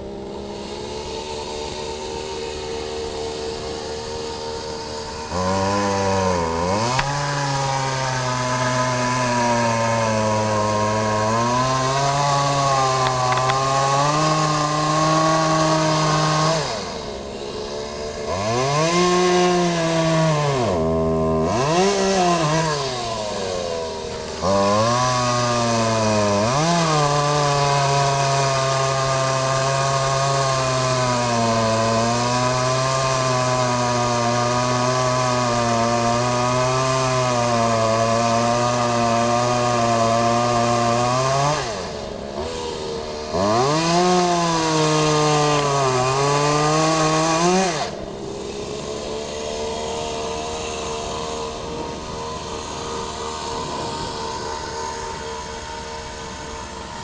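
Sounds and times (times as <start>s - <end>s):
chainsaw engine revving: 0.0s - 57.0s.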